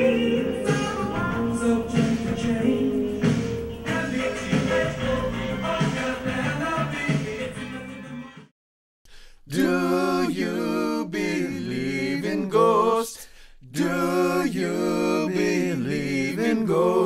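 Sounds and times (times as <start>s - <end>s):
a cappella singing: 0.0s - 8.4s, 9.4s - 17.0s
music: 0.0s - 8.5s.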